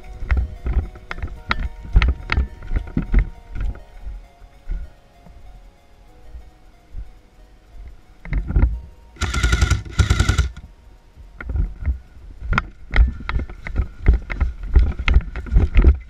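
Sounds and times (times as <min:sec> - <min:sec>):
airsoft gun bursts: 0:09.2 - 0:10.6.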